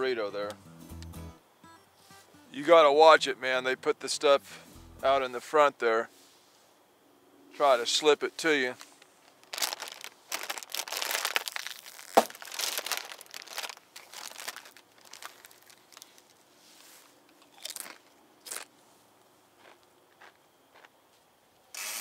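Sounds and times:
chips being crunched and chewed: 9.2 - 16.4, 17.3 - 18.7
sharp crack: 11.4 - 12.5.

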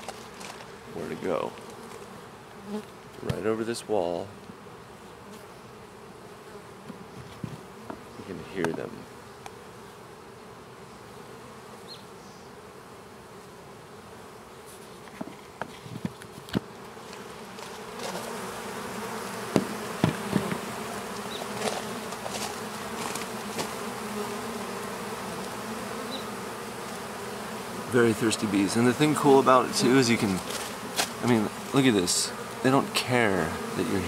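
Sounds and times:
bees buzzing: 0.0 - 34.0
sharp knocks: 19.5 - 20.6.

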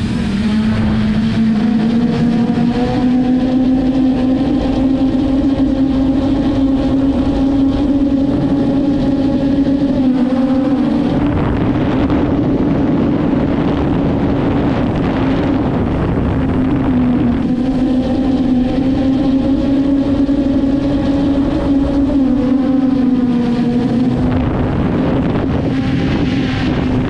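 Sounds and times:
drone propellers humming: 0.0 - 27.0.

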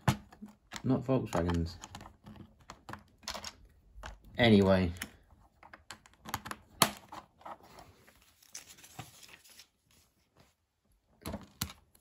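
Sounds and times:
plastic bricks clicking together: 0.3 - 6.9.

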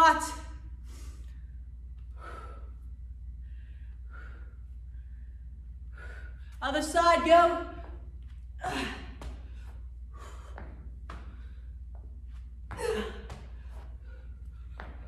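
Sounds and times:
low hum: 0.3 - 15.0
woman breathing hard: 0.7 - 6.6, 7.8 - 15.0
woman gasping: 8.6 - 10.6, 12.7 - 14.8.

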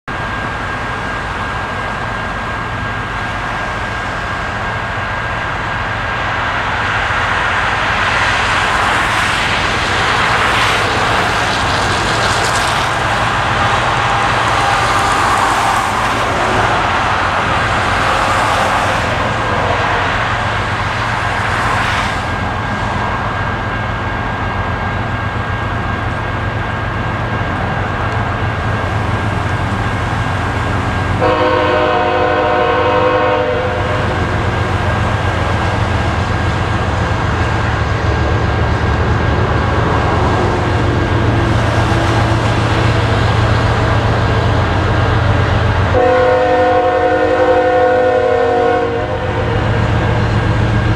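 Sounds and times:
diesel locomotives rumbling: 0.0 - 50.9
multi-tone air horn blast: 31.2 - 34.1, 45.9 - 49.4.

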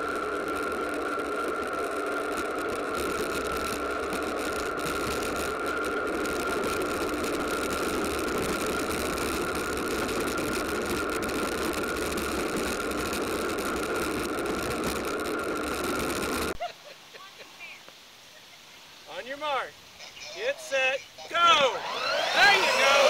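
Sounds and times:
electric motor whine: 0.0 - 16.6, 20.0 - 23.0
plastic wheels rattling on ground: 0.0 - 16.6.

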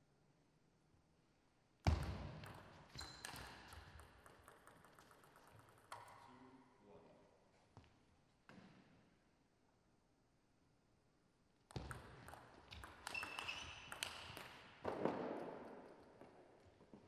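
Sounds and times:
ping pong ball clicks: 2.4 - 6.3, 11.7 - 15.0.

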